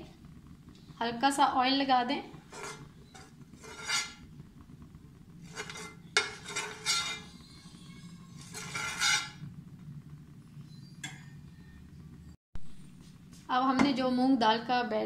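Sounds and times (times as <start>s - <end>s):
spoon scraping a frying pan: 2.3s - 4.4s, 5.4s - 9.5s.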